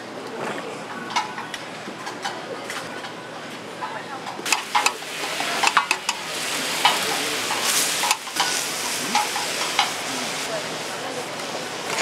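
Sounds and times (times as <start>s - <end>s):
food sizzling on a griddle: 4.4s - 12.0s.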